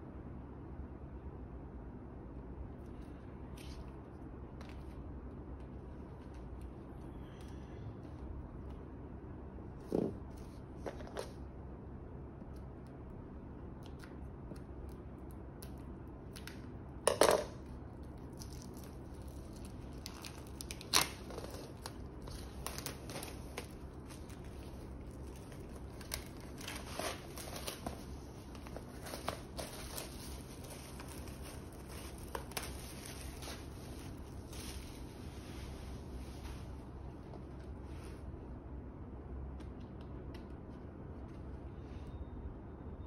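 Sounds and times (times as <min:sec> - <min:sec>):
plastic wrap tearing and crinkling: 0:17.9 - 0:35.4
scissors cutting plastic wrap: 0:18.2 - 0:35.0.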